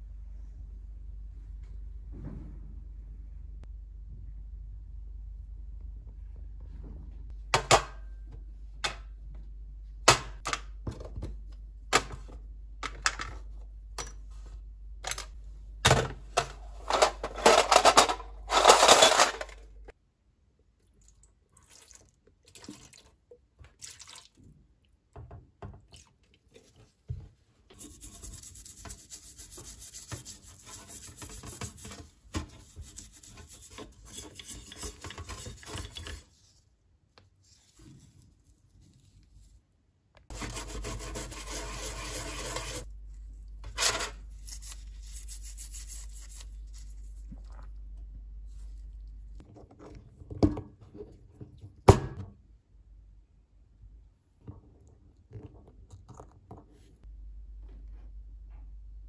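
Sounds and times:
metal parts clattering into tray: 16.4 - 19.7
brush scrubbing parts: 27.7 - 36.6, 40.3 - 42.9, 43.7 - 47.3.

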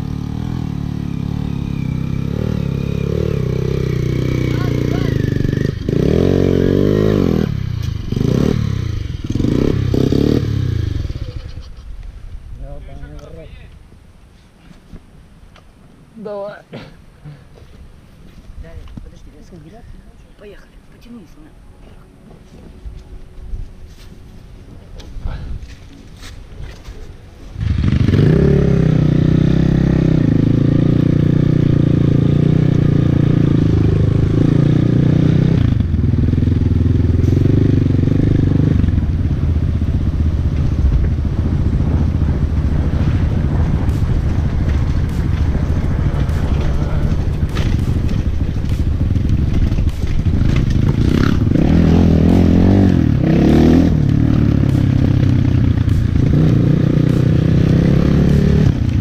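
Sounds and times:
off-road motorcycle engine: 0.0 - 12.0, 24.7 - 59.0.

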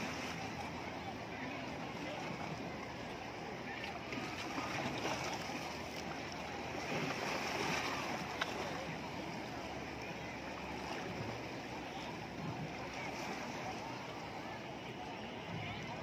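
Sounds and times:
sea waves splashing against rocks: 3.6 - 9.6, 10.8 - 14.4.

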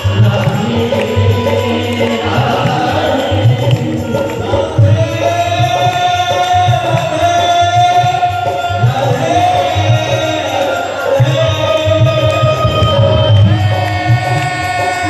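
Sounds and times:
man singing into a microphone: 0.0 - 15.0
rhythmic drum accompaniment: 0.0 - 15.0.

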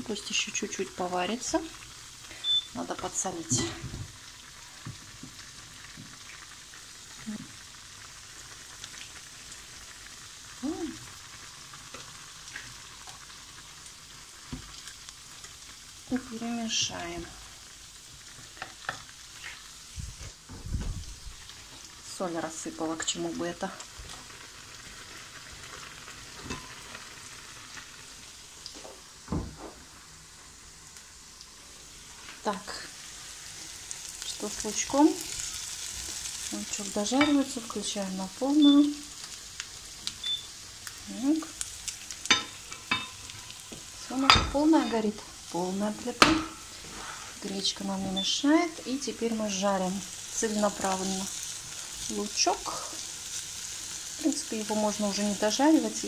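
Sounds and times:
onion sizzling in a pan: 0.0 - 56.0
loud thump: 29.3 - 29.7.

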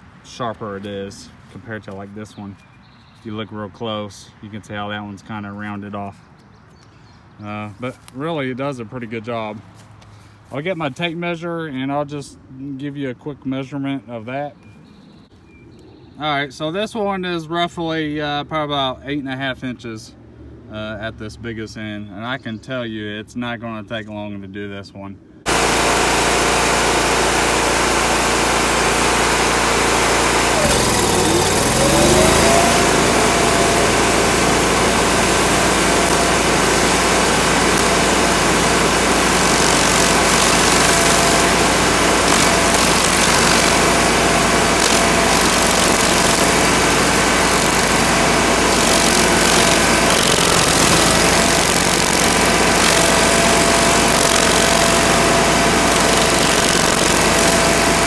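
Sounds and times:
stump grinder grinding: 25.5 - 58.0.

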